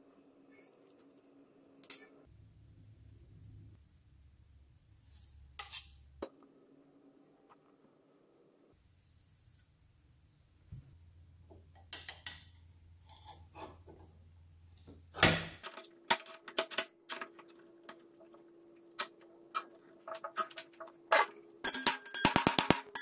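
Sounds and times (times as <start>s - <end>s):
steel bars clinking and knocking: 19.0s - 23.0s.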